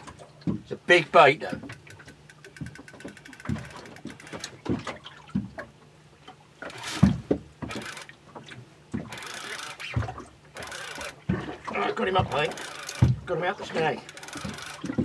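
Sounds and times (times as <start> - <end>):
water lapping against boat hull: 0.0 - 15.0.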